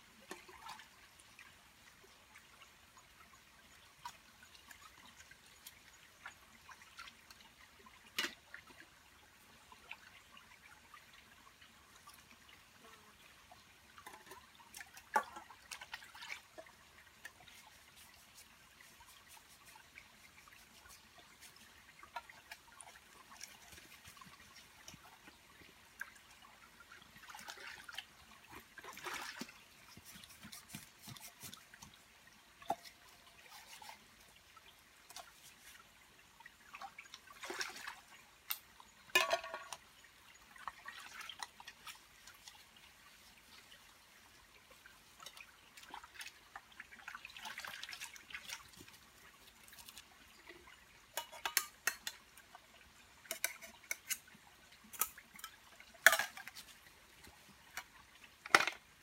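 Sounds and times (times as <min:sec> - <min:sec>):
stream trickling: 0:00.0 - 0:59.0
water splashing and dripping: 0:00.0 - 0:59.0
metal pot clanking: 0:39.2 - 0:39.8, 0:51.2 - 0:52.2, 0:55.0 - 0:56.5.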